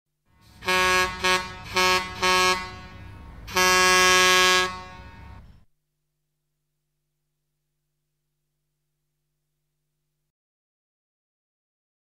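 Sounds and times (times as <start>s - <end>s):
air horn blasts: 0.3s - 5.6s.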